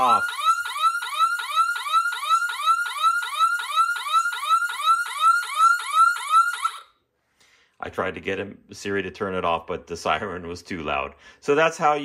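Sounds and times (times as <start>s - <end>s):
whooping alarm siren: 0.0s - 7.0s.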